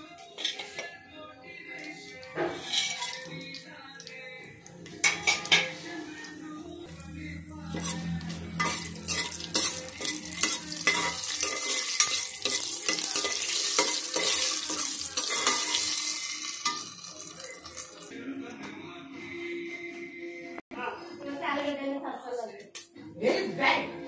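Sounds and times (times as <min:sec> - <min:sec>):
utensil scraping metal pot: 0:00.3 - 0:01.0, 0:02.3 - 0:03.6, 0:06.9 - 0:18.1
spices sizzling in hot oil: 0:01.8 - 0:04.2, 0:07.6 - 0:18.1.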